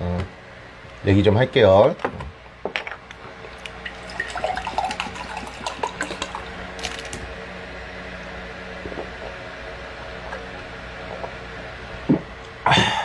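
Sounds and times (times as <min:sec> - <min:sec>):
water pouring into a glass: 0:03.6 - 0:06.9
plastic bottle crackle: 0:06.8 - 0:07.2.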